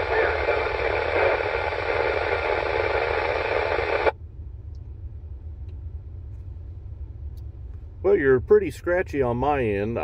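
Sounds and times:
radio static hiss: 0.0s - 4.2s
vehicle rumble: 4.1s - 10.0s.

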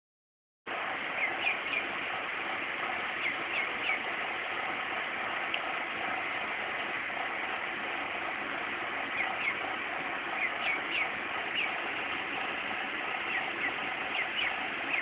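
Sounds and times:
steady hiss: 0.7s - 15.0s
duckling peeping: 1.2s - 1.9s, 3.2s - 4.1s, 9.1s - 9.7s, 10.3s - 11.8s, 13.2s - 15.0s.

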